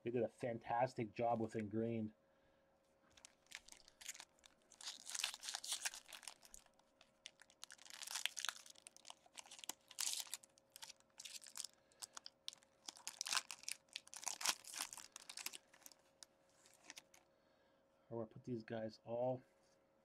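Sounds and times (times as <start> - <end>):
foil wrapper tearing and crinkling: 3.1 - 17.2.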